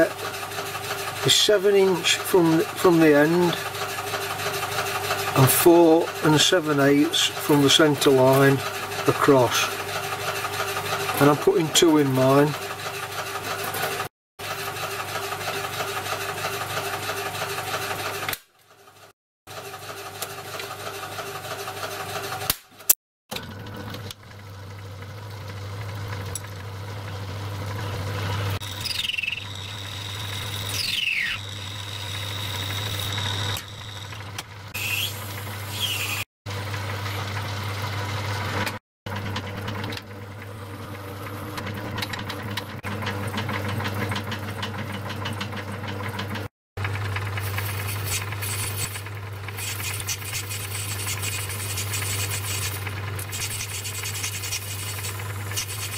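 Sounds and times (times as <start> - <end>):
metal lathe motor hum: 24.8 - 37.4
cutting squeals: 28.6 - 36.3.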